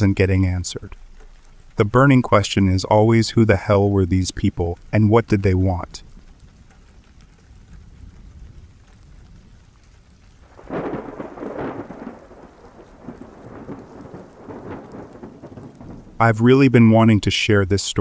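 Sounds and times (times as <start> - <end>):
low thunder rumble: 0.0 - 18.0
steady rain: 0.0 - 18.0
thunder peal: 10.2 - 16.8.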